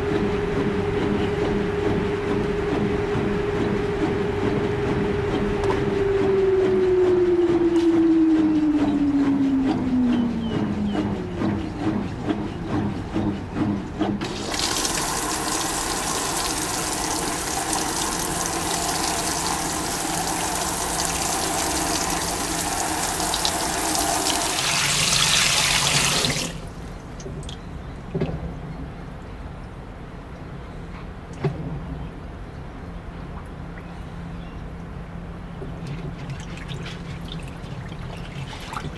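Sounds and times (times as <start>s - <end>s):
washer motor hum winding down: 0.0s - 27.4s, 35.2s - 38.9s
water spraying into tub: 14.2s - 27.0s, 35.9s - 38.9s.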